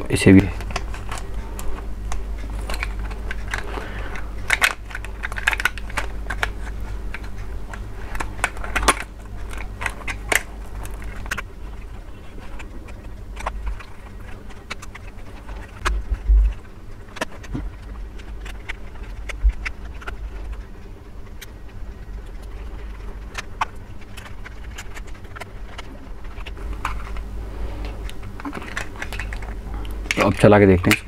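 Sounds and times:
low steady hum: 0:00.0 - 0:31.0
plastic toy clicking and rattling: 0:00.2 - 0:20.7, 0:28.1 - 0:29.5.

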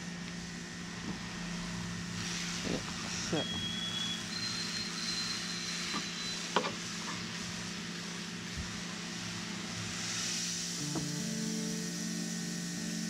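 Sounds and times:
even hiss: 0:01.6 - 0:13.0
faint high whistle: 0:03.3 - 0:06.6.

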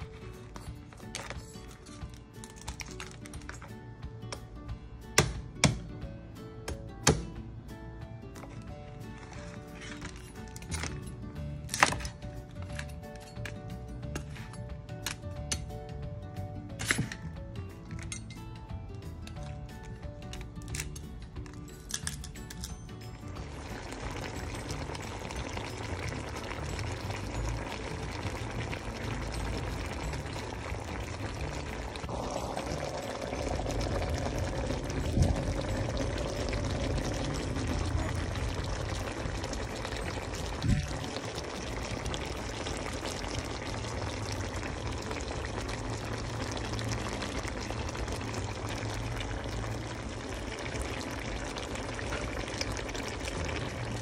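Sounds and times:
sauce bubbling: 0:23.4 - 0:54.0.

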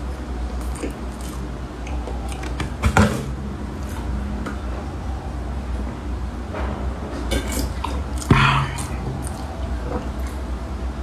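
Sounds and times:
chewing: 0:00.6 - 0:02.6, 0:07.3 - 0:10.5
low hum: 0:08.1 - 0:11.0.

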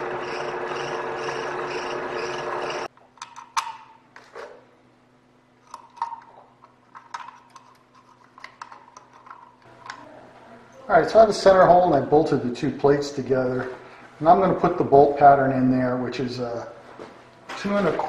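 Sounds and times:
milling machine running: 0:00.0 - 0:02.9.

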